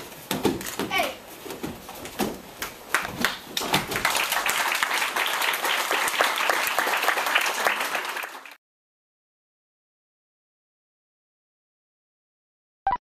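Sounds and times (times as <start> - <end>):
audience applauding: 2.9 - 8.6.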